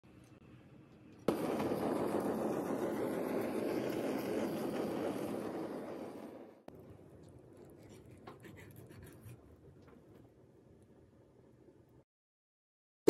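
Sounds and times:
blowtorch flame hissing: 0:01.3 - 0:06.9.

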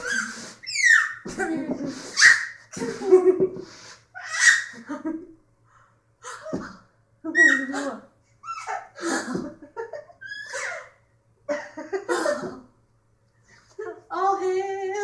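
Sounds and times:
baby giggling: 0:07.4 - 0:09.4.

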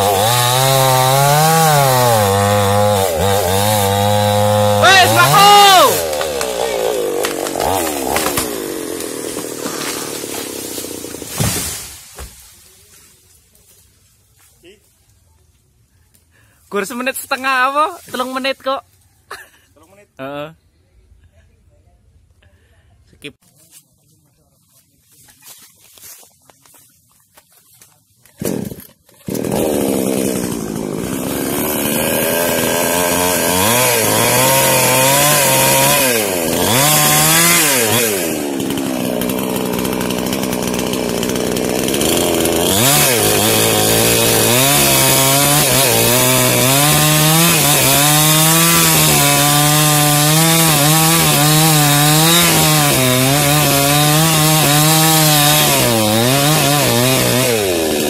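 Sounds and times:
chainsaw running and revving: 0:00.0 - 0:12.0, 0:28.3 - 0:58.0.

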